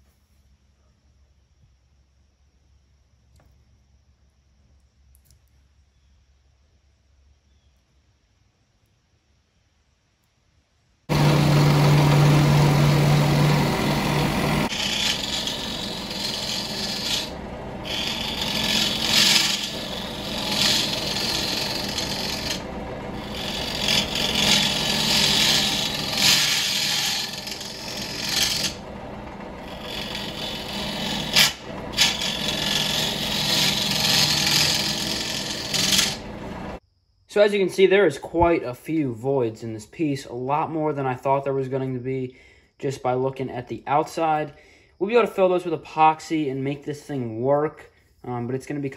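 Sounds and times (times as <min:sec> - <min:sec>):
lathe gouge scraping cut: 0:11.1 - 0:36.8
steady hum: 0:11.1 - 0:36.8.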